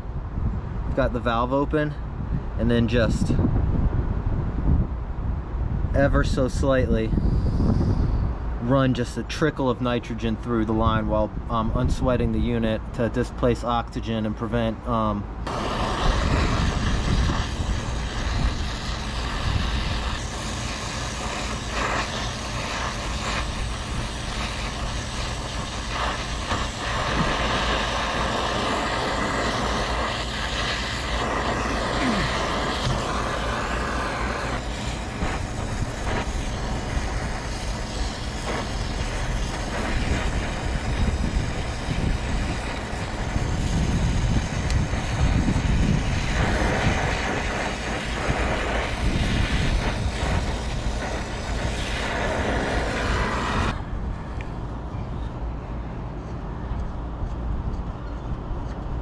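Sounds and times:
wind buffeting microphone: 0.0s - 13.0s, 15.2s - 56.2s
torch flame hissing: 15.0s - 53.8s.

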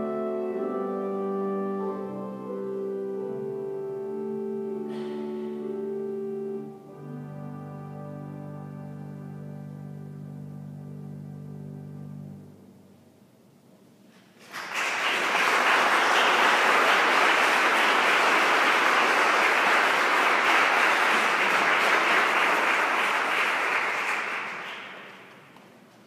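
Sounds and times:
audience applauding in echoing hall: 14.3s - 25.8s.

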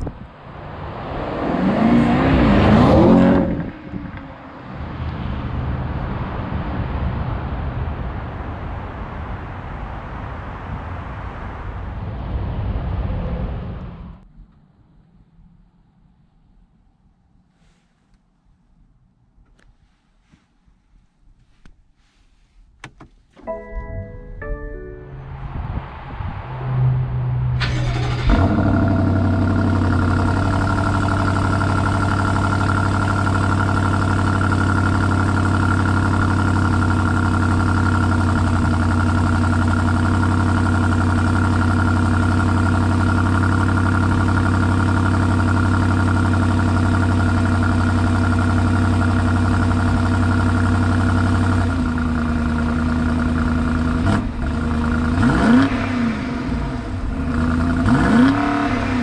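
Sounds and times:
car engine starting and idling: 22.4s - 59.0s
engine throttle blip: 27.4s - 32.7s.

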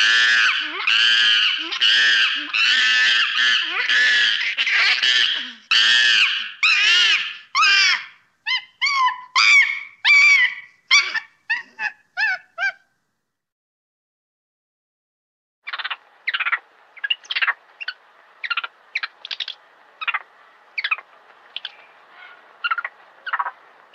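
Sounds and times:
monkey screaming: 0.0s - 12.8s, 21.6s - 23.6s.

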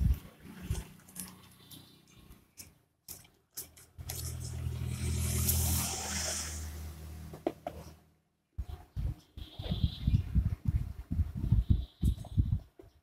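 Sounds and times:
motor vehicle passing: 4.0s - 8.0s.

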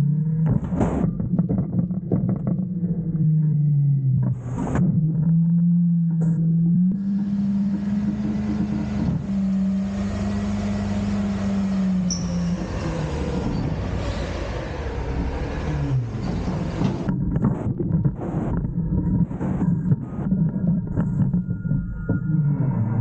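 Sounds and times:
hydraulic whine: 4.4s - 17.2s
garbage truck engine revving: 4.4s - 21.3s.

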